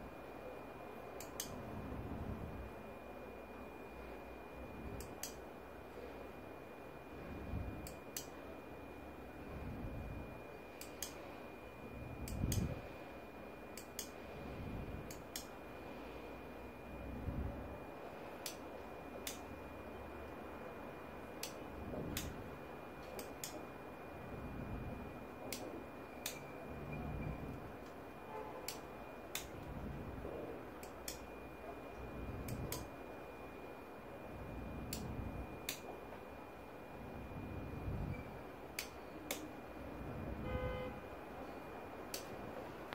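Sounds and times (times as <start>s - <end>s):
faint high whine: 0.0s - 42.9s
switch clicks in pairs: 38.8s - 39.5s.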